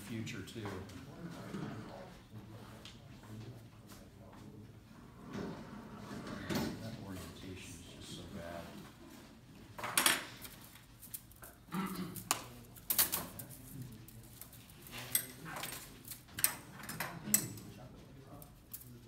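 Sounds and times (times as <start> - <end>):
metal tools clicking and clinking: 12.2 - 17.7.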